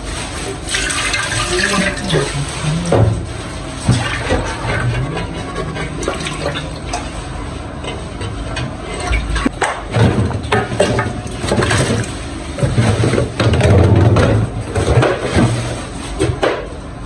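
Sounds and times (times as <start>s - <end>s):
water sloshing in a pot: 0.5s - 13.5s.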